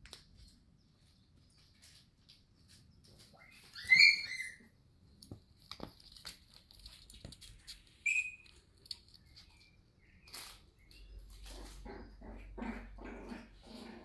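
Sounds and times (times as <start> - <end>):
toy squeaks: 3.8 - 4.6, 8.0 - 8.4
puppy pawing and chewing toy: 5.2 - 10.6.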